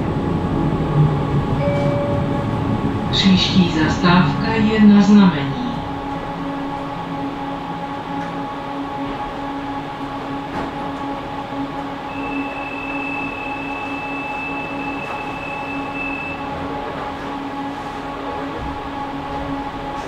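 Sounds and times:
tram electrical hum: 0:00.0 - 0:20.0
steady high tone: 0:01.6 - 0:10.4, 0:11.5 - 0:16.7.

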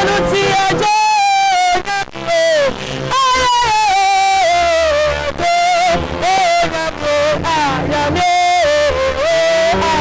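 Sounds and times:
person singing worship song: 0:00.0 - 0:10.0.

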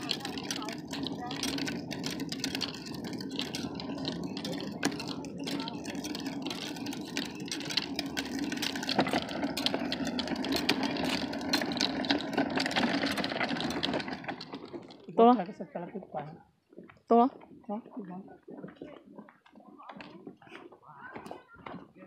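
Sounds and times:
clicks and rattles: 0:00.0 - 0:15.6
plastic wheels rumbling over concrete: 0:00.0 - 0:22.0.

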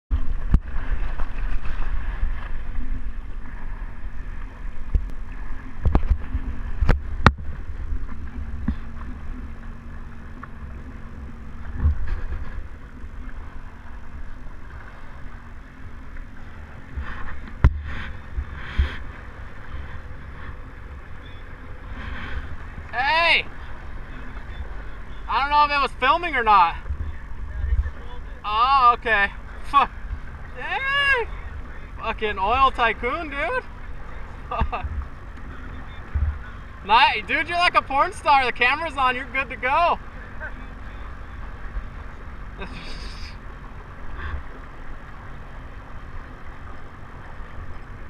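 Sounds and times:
wind buffeting microphone: 0:00.1 - 0:37.9
jet ski engine idling: 0:00.1 - 0:48.0
water gurgling against hull: 0:00.1 - 0:48.0.

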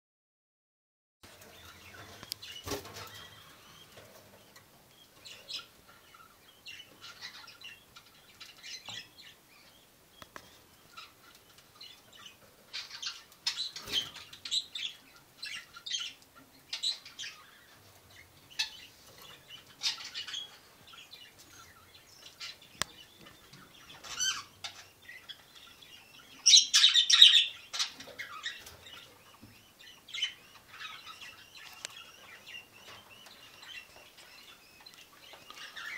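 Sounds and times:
budgerigars chirping: 0:01.5 - 0:35.9.

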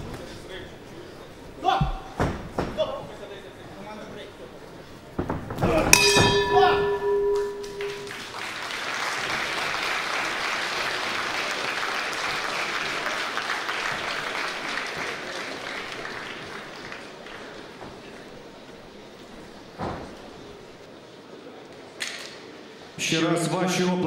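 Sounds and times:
boxing ring bell ringing: 0:05.9 - 0:08.3
crowd applauding: 0:07.4 - 0:18.3.

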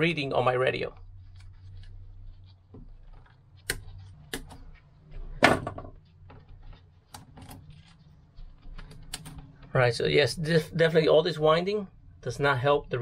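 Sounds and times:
cable rustling: 0:00.6 - 0:10.0.

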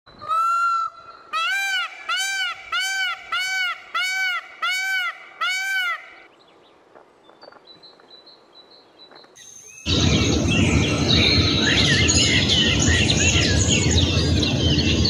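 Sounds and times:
peacock calling: 0:00.1 - 0:06.3
small birds chirping: 0:06.2 - 0:15.0.

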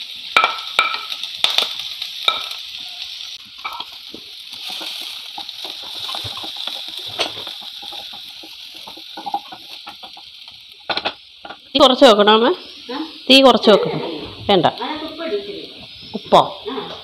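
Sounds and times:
onion frying in hot oil: 0:00.0 - 0:17.0
wooden spatula scraping pan: 0:04.5 - 0:10.2.

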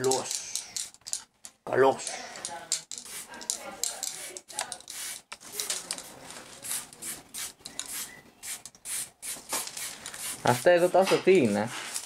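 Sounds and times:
spray paint can hissing: 0:02.8 - 0:10.8.

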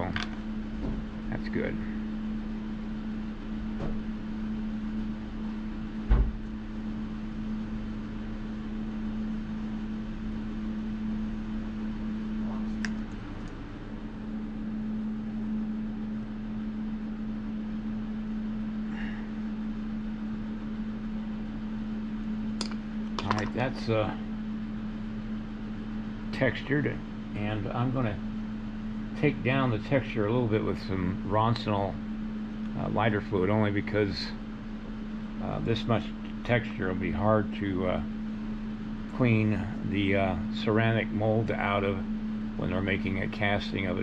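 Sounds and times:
machine hum drone: 0:00.0 - 0:44.0
dull thump: 0:06.1 - 0:06.4.

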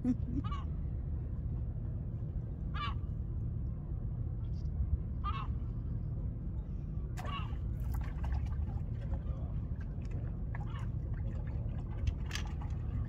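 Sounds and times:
steady low rumble: 0:00.0 - 0:13.0
gull calling: 0:07.2 - 0:07.6.

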